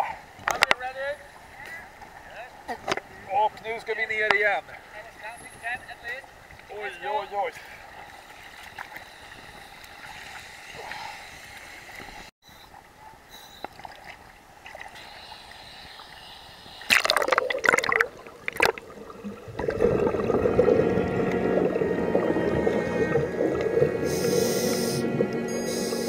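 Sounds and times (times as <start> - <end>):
water lapping and gurgling: 6.3 - 12.3, 13.7 - 15.2, 16.8 - 26.0
loud water splashes: 16.9 - 25.5
exhaled bubbles: 16.9 - 26.0
underwater rush: 16.9 - 26.0.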